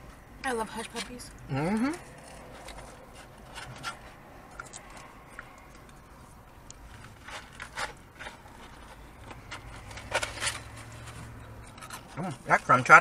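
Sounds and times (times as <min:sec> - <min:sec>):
food packaging rustling: 0:06.7 - 0:12.9.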